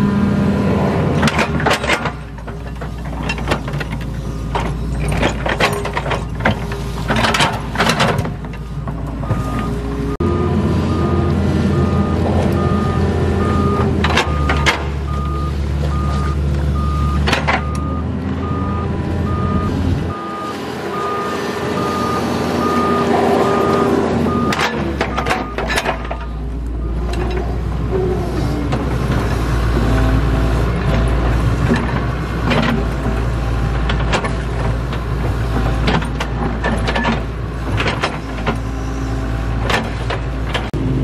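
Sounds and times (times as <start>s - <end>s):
excavator diesel engine: 0.0s - 41.0s
travel alarm beeping: 11.8s - 25.6s.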